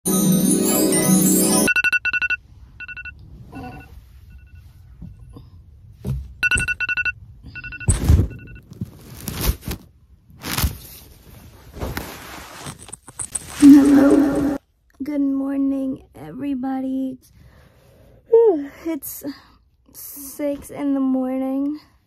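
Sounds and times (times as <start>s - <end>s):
phone alarm beeping: 1.0s - 4.8s, 6.4s - 8.6s
bedding rustling and thumping: 5.9s - 6.4s.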